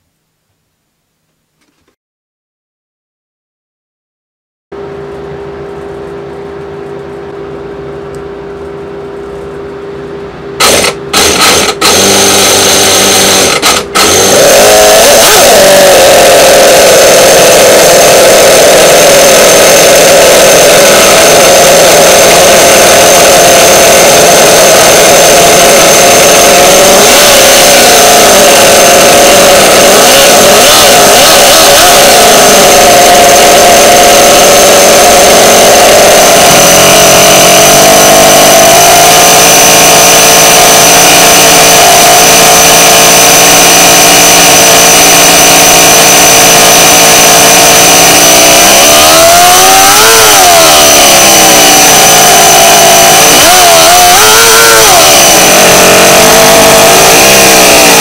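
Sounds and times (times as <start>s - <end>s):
model engine running: 10.6s - 38.2s.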